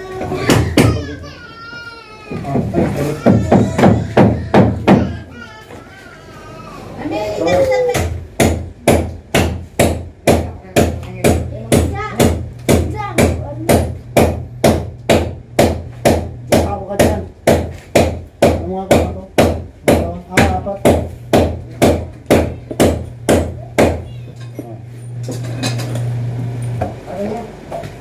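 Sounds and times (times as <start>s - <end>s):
steady low hum: 8.0s - 28.0s.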